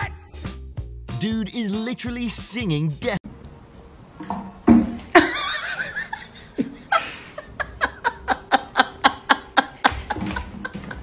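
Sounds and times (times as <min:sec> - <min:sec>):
person laughing: 0:05.2 - 0:11.0.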